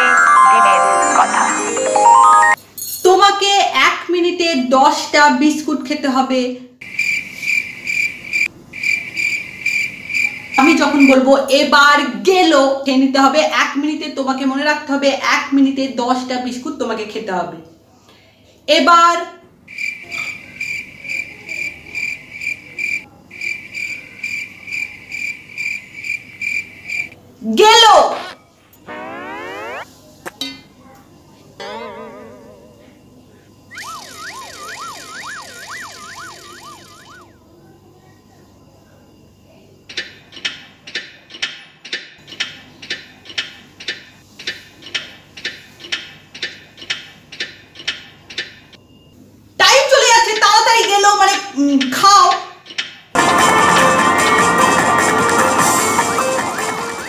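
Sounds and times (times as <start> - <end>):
high-pitched pulsing trill: 28.0 - 29.9, 33.7 - 37.3.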